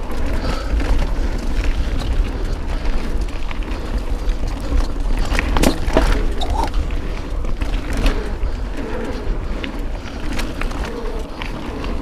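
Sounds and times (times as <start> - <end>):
bike tyres rumbling on dirt: 0.0 - 12.0
bike knocking: 4.0 - 8.3.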